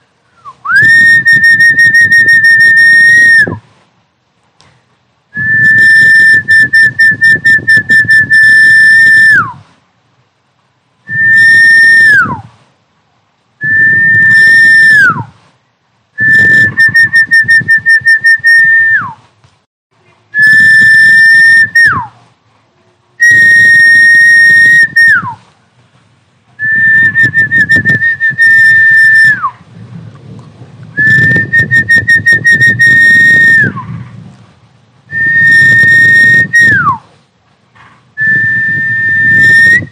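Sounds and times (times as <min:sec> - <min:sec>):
loud high fluttering whistles: 0:00.4 - 0:03.6, 0:05.3 - 0:09.7, 0:11.1 - 0:12.6, 0:13.6 - 0:15.4, 0:16.2 - 0:19.2, 0:20.4 - 0:22.2, 0:23.2 - 0:25.4, 0:26.6 - 0:29.6, 0:31.0 - 0:34.0, 0:35.1 - 0:37.1, 0:38.2 - 0:39.9.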